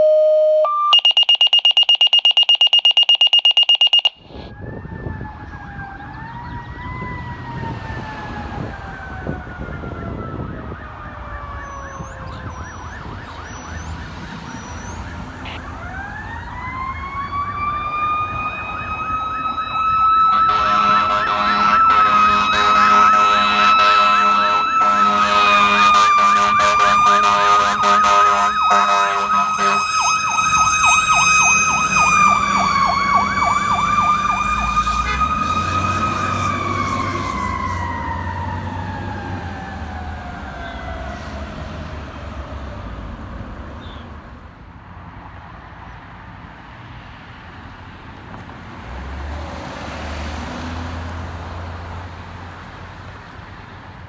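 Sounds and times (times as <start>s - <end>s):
warbling electronic siren: 0.0s - 7.1s, 17.0s - 41.0s
mechanical siren wailing: 0.0s - 41.2s
air horns blasting: 20.3s - 35.8s.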